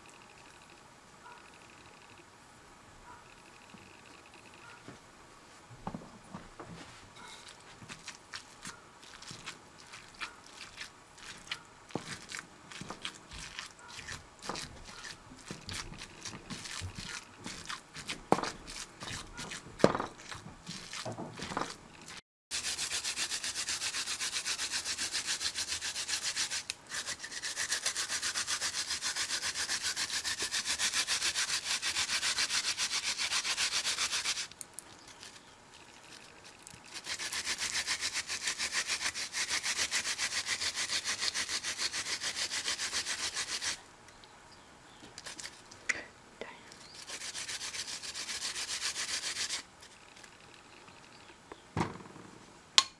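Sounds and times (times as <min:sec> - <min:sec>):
yam rasping on plastic grater: 0:07.4 - 0:43.8, 0:47.0 - 0:49.7
wooden pestle knocking in mortar: 0:15.4 - 0:21.8.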